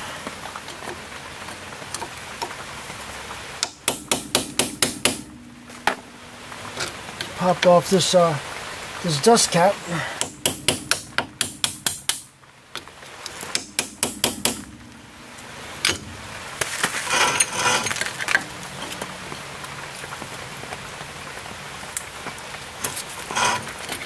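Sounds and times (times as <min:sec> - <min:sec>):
tool tapping metal cap: 0:03.6 - 0:06.0, 0:10.2 - 0:12.3
scraping rattle: 0:15.8 - 0:19.0, 0:23.0 - 0:24.0.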